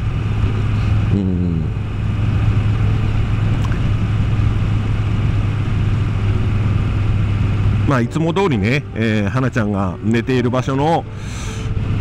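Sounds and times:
motorcycle engine cruising: 0.0s - 12.0s
road and wind noise: 0.0s - 12.0s.

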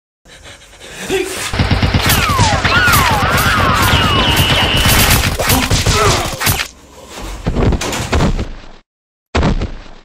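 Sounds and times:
rapid automatic gunfire: 1.5s - 6.6s
falling whistles: 2.2s - 5.1s.

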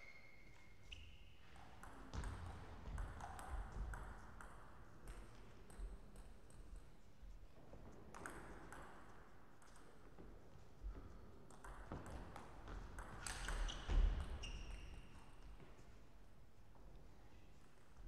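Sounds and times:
table tennis balls bouncing: 1.7s - 6.4s, 8.2s - 9.9s, 11.5s - 15.0s.

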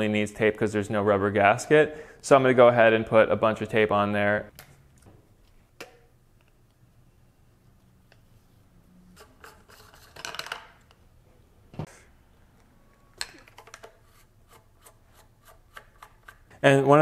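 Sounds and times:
plastic pipe parts rubbing: 8.1s - 10.9s, 13.1s - 16.6s.

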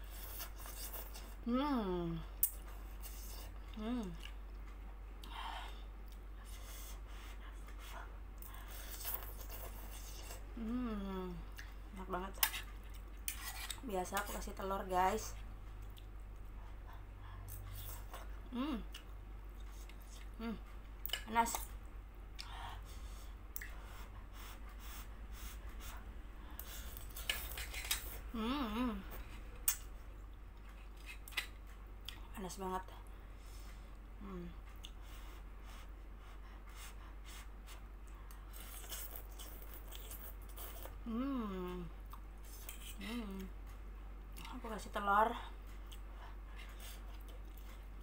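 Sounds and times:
person humming with mouth full: 1.5s - 2.2s, 3.8s - 4.2s, 10.6s - 11.5s, 18.5s - 19.0s, 28.3s - 29.2s, 41.0s - 41.9s
fork rubbing in pot: 13.3s - 13.8s
fork clicking and scraping pot: 27.2s - 28.1s.

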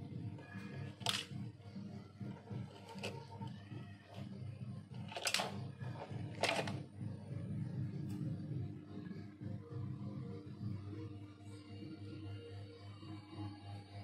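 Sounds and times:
toy cars clattering into metal bowl: 5.1s - 5.6s.

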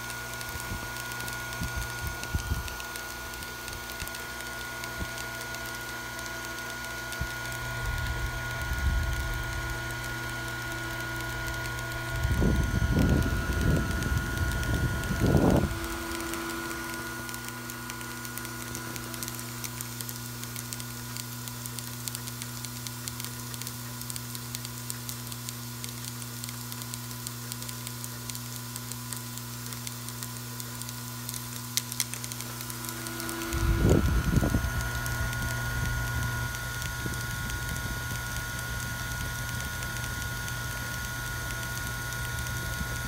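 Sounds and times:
low electromagnetic hum: 0.0s - 43.0s
small parts pattering and ticking: 0.0s - 43.0s.

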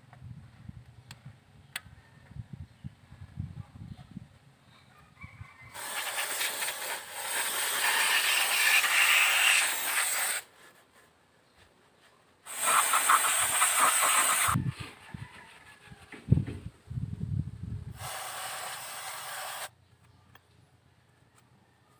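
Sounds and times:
spray can hissing: 5.8s - 10.5s, 12.5s - 14.6s, 18.0s - 19.7s.

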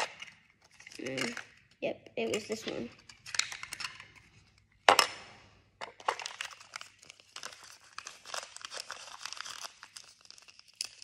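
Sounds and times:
plastic packaging crinkling: 5.8s - 11.0s.

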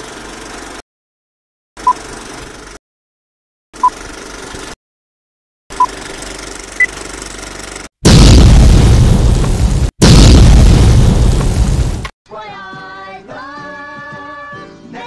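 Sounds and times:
film projector rattle: 4.0s - 4.8s, 5.9s - 7.9s.

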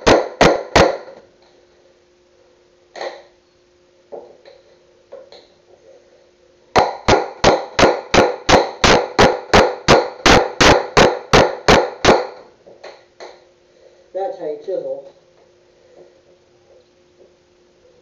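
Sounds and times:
hammer striking chisel: 0.0s - 1.2s, 6.8s - 13.4s.

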